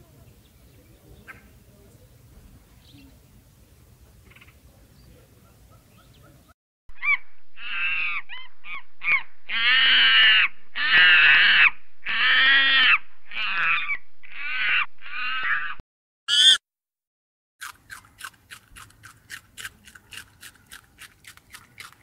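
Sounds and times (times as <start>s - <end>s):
animal calls: 5.4s - 16.6s.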